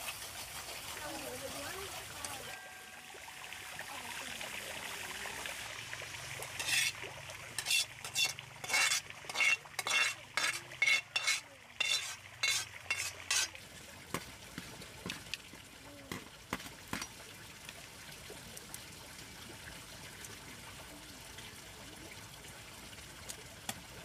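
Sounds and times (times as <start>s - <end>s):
utensil scraping in cooking pot: 6.4s - 7.0s, 7.6s - 13.6s.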